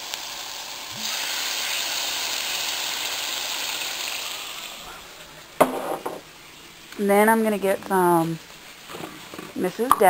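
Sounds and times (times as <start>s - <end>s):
meat sizzling in a frying pan: 0.0s - 5.6s, 6.2s - 9.9s
sauce hissing in hot pan: 0.0s - 5.6s.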